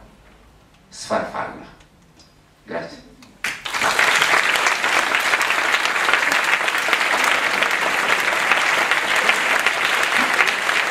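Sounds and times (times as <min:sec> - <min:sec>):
audience applauding: 0:03.4 - 0:10.9.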